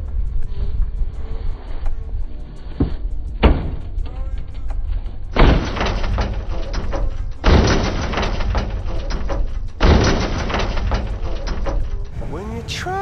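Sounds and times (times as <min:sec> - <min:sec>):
heavy bass hits: 0:03.4 - 0:04.0, 0:05.3 - 0:11.2
hip-hop beat: 0:12.2 - 0:13.0.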